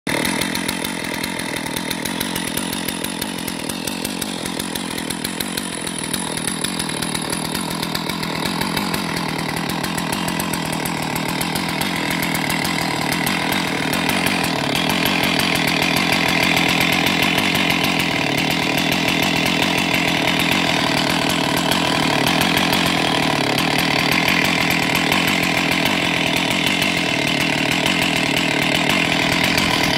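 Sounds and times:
chainsaw engine idling: 0.1s - 29.9s.

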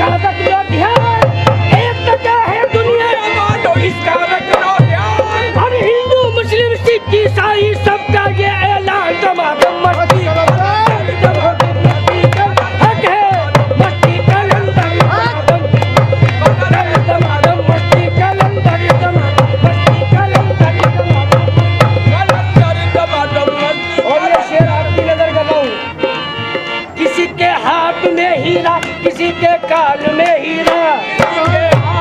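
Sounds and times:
harmonium: 0.0s - 32.0s
fast drum rhythm: 9.6s - 23.3s
person singing wavering melody: 10.5s - 32.0s.

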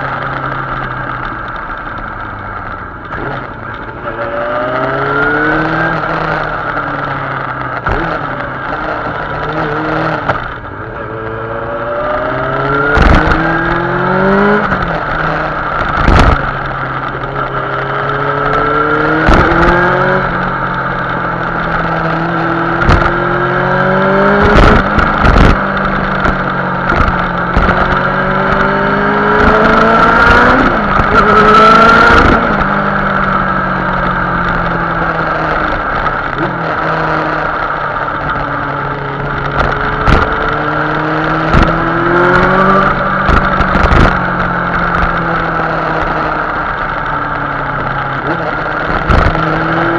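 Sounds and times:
motorcycle engine accelerating: 0.0s - 49.9s
exhaust cracks: 12.2s - 23.3s, 24.4s - 49.8s.

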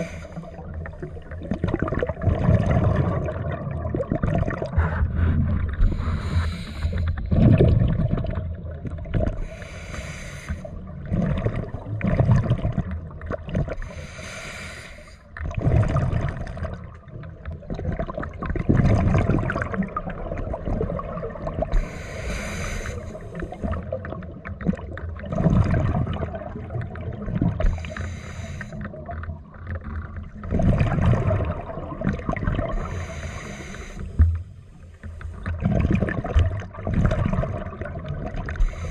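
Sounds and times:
regulator hissing inhalation: 0.0s - 0.5s, 5.8s - 7.2s, 9.4s - 10.8s, 13.9s - 15.2s, 21.8s - 23.5s, 27.7s - 28.9s, 32.8s - 34.2s
exhaled bubbles rushing: 0.0s - 6.4s, 7.0s - 9.6s, 10.7s - 13.9s, 15.4s - 21.9s, 22.9s - 27.9s, 28.8s - 33.1s, 35.4s - 38.9s.

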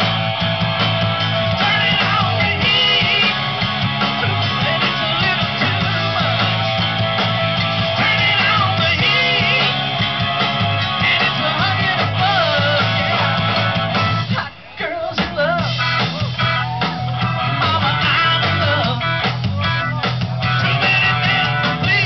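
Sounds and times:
drum kit: 0.0s - 22.0s
electric guitar: 0.0s - 22.0s
people singing: 1.4s - 7.0s, 7.8s - 13.7s.

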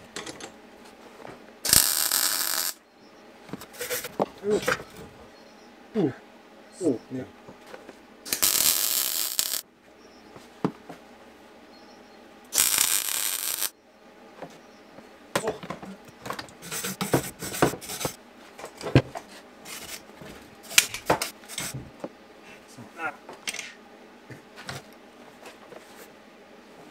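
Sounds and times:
welder arc crackling hiss: 1.6s - 2.8s, 8.3s - 9.6s, 12.5s - 13.7s
wire brush scraping metal: 1.7s - 2.8s, 3.7s - 4.1s, 12.6s - 13.7s.

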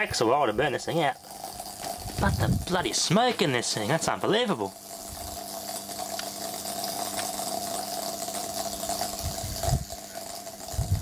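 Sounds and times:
capacitor hissing: 0.0s - 11.0s
electrical hum: 0.0s - 11.0s
wind rumble on microphone: 2.0s - 2.7s, 9.2s - 10.0s, 10.7s - 11.0s.

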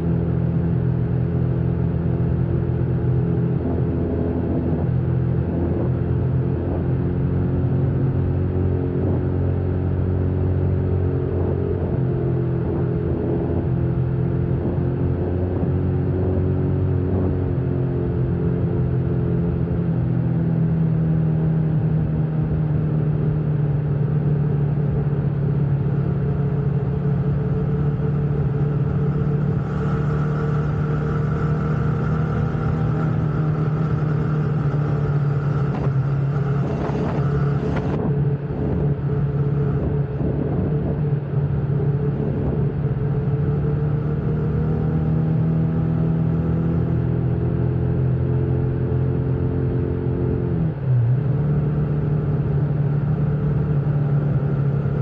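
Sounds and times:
motorcycle engine running: 21.9s - 49.2s.

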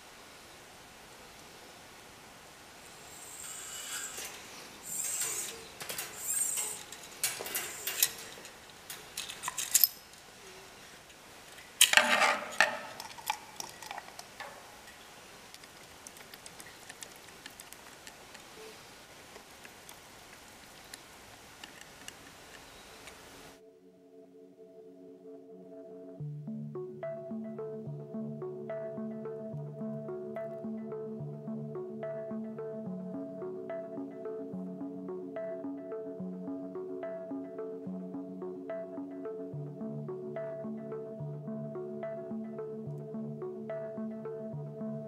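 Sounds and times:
light metallic clinks and scrapes: 5.0s - 10.0s.

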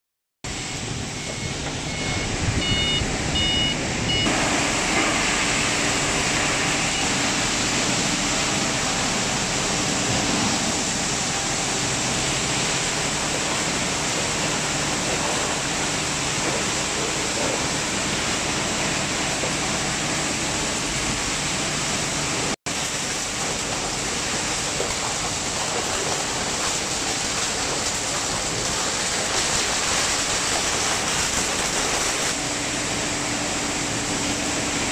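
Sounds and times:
recycling machinery roar: 0.4s - 34.9s
short high beeps: 0.6s - 4.3s.

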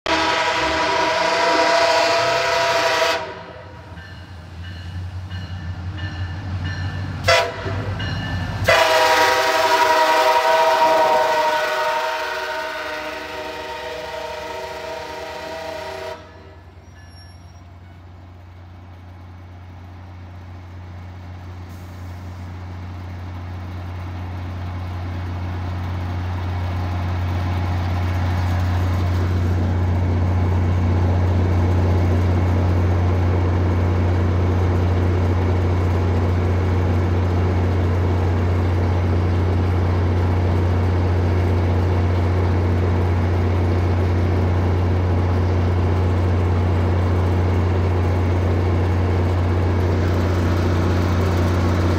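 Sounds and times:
diesel locomotive engine hum: 0.0s - 51.9s
train horn chord: 0.1s - 3.9s, 7.2s - 16.7s
rail and wheel noise: 0.1s - 51.9s.

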